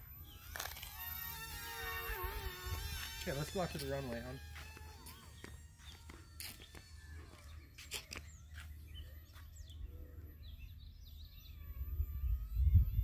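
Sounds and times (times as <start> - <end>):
small birds chirping: 0.0 - 13.0
wind rumbling on microphone: 9.8 - 13.0.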